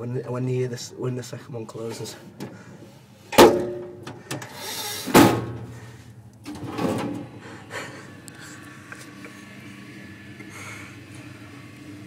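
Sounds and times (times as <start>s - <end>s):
lift door banging shut: 3.4s - 4.0s, 5.1s - 5.7s
low lift hum: 5.5s - 12.0s.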